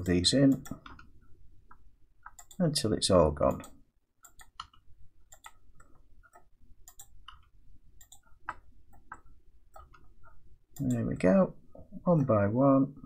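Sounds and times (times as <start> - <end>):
mouse and keyboard clicking: 1.7 - 2.7, 3.5 - 11.1.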